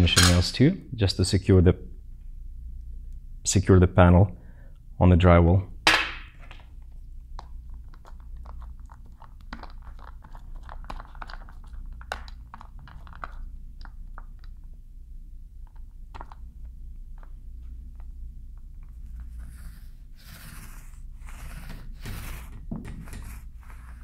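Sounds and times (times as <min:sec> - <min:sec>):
low steady hum: 0:00.0 - 0:24.0
paint roller sticky crackles: 0:07.4 - 0:14.7, 0:17.9 - 0:24.0.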